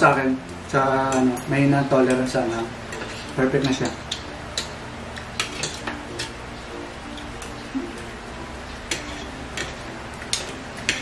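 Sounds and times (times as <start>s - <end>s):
cutlery clinking on plates: 2.1s - 6.4s, 8.9s - 11.0s.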